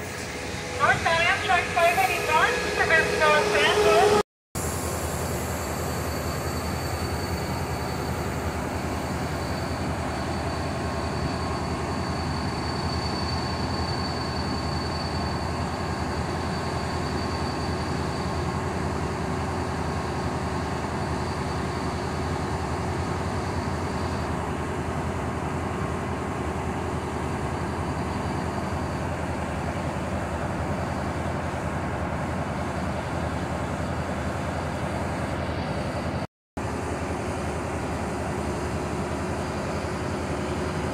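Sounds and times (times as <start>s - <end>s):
diesel locomotive idling: 0.0s - 40.9s.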